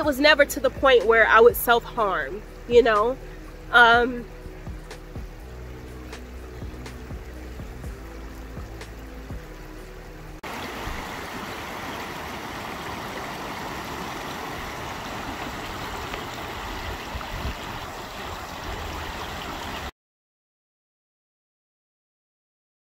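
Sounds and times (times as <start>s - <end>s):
water rushing over rocks: 4.7s - 19.9s.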